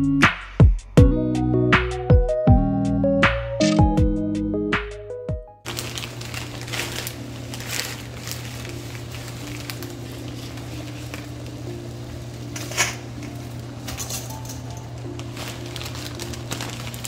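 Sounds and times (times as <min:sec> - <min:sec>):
water boiling in a pot: 0:05.7 - 0:13.8
steady low hum: 0:06.0 - 0:17.0.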